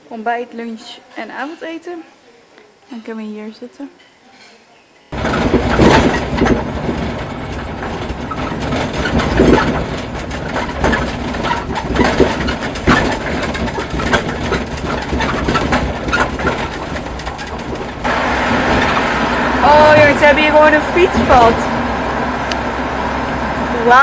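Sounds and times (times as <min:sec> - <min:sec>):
vehicle engine and road noise: 0:05.2 - 0:24.0
vehicle frame rattling: 0:05.2 - 0:24.0.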